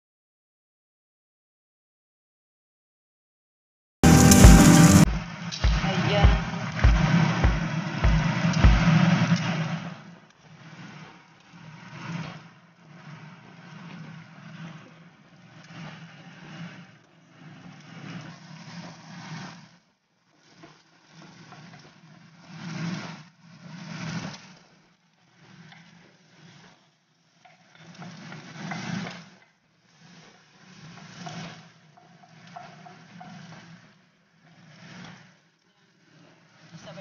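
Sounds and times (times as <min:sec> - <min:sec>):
garlic and onion sizzling: 0:04.0 - 0:05.1.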